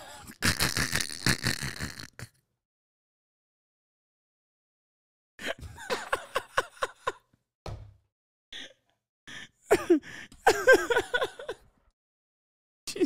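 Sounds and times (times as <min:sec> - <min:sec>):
man laughing: 0:05.4 - 0:07.3, 0:09.7 - 0:11.6
man gasping breaths: 0:09.3 - 0:10.4.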